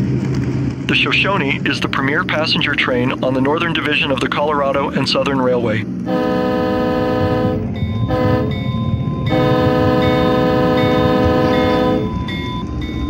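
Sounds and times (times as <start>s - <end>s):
train rumbling past: 0.0s - 13.0s
locomotive horn blasts: 6.0s - 12.4s.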